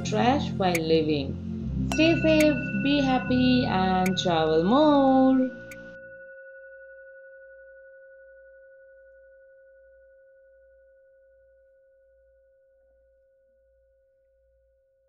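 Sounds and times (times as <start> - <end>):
faint bell-like ringing tone: 1.9 - 11.9.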